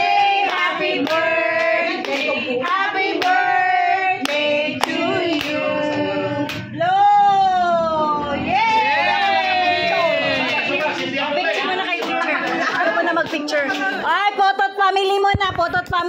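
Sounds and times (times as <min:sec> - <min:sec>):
group of people singing: 0:00.0 - 0:07.0, 0:08.1 - 0:14.1
hands clapping: 0:02.0 - 0:03.4.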